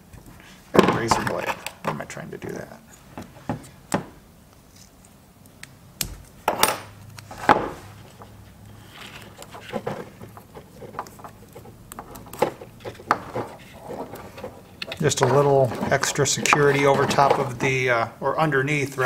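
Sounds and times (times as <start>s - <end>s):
tools and wires clattering: 9.4s - 17.7s.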